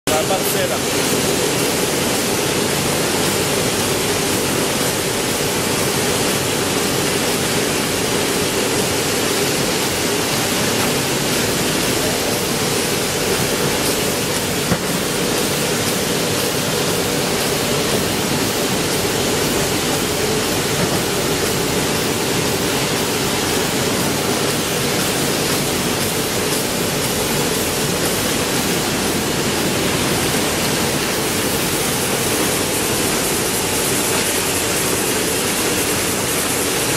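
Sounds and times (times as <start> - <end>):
printing press running: 0.1 - 36.9
machine knock: 9.7 - 36.2.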